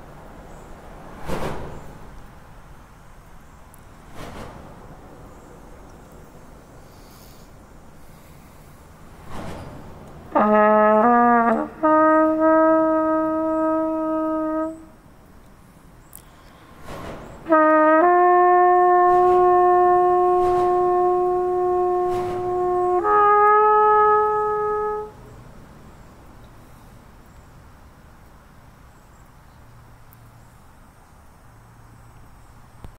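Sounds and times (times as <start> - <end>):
trumpet playing: 10.3 - 15.1, 17.4 - 25.3.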